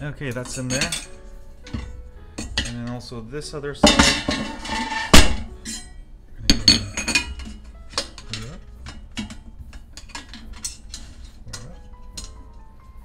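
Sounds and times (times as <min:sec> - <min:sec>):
metal frame parts clicking and knocking: 0:06.5 - 0:12.7.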